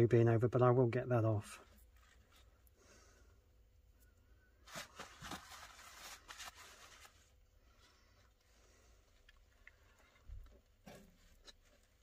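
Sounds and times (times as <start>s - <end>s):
soft rubs and scrapes: 1.6s - 2.7s.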